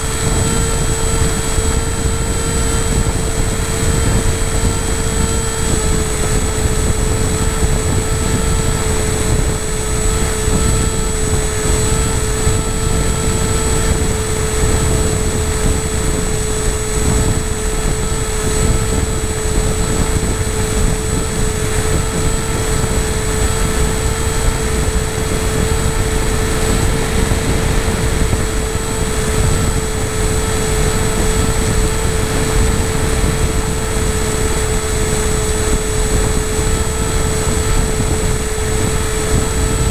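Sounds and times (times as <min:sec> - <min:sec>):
model aircraft motor whine: 0:00.0 - 0:39.9
wind rumble on microphone: 0:00.0 - 0:39.9.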